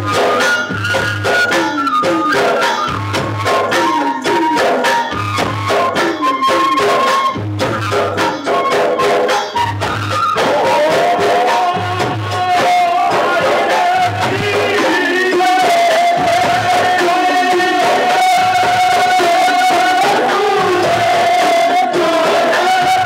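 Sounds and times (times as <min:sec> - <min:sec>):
flute: 0:00.0 - 0:23.0
person singing: 0:01.5 - 0:02.9, 0:03.5 - 0:09.4, 0:10.4 - 0:23.0
deep frame drums beating: 0:09.6 - 0:23.0.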